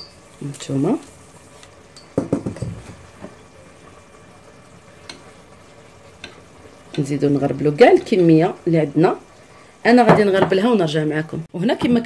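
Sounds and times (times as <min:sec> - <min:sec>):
sieve knocking on steel bowl: 0:02.1 - 0:02.8.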